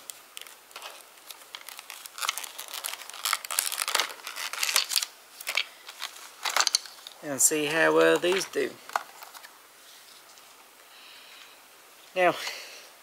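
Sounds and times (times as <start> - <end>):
packaging crinkling and tearing: 0.0 - 7.2, 8.0 - 9.5.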